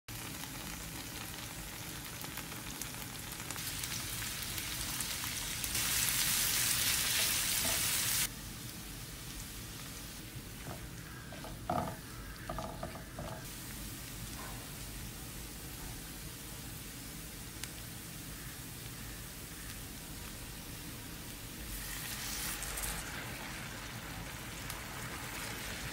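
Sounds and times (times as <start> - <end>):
onions sizzling in a frying pan: 0.1 - 25.9
utensil scraping a pan: 10.7 - 13.5.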